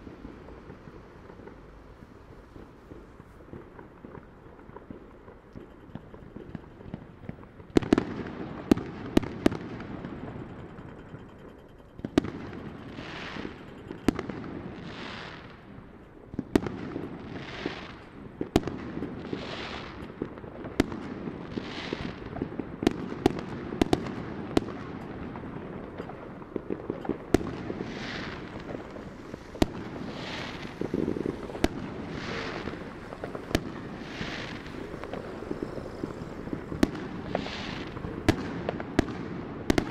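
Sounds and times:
firework bangs and crackles: 0.0 - 39.9
rumble of distant fireworks: 0.0 - 39.9
hissing firework whooshes: 27.4 - 39.9.

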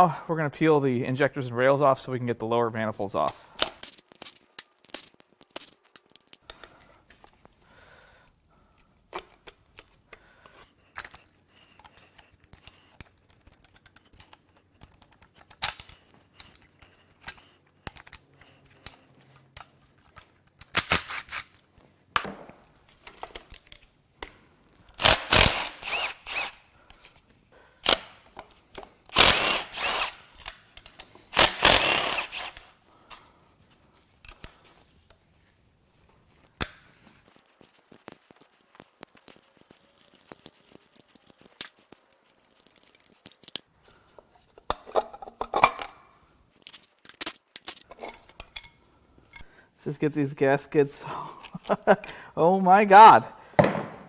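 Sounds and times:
cordless ratchet bursts: 24.9 - 26.7, 29.1 - 30.7, 31.3 - 32.7.

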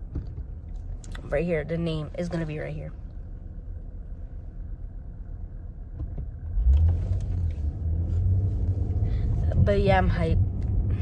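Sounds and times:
car driving rumble inside cabin: 0.0 - 11.0.

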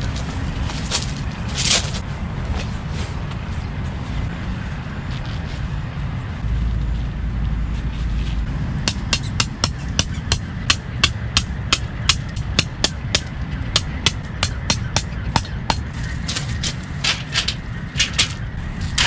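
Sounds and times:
tent pegs hammered into gravel: 8.9 - 19.0.

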